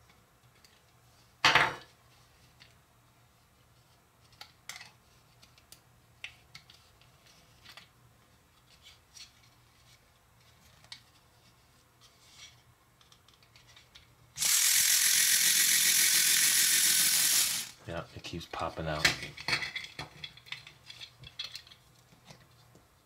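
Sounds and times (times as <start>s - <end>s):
toy motor whirring: 14.4s - 17.8s.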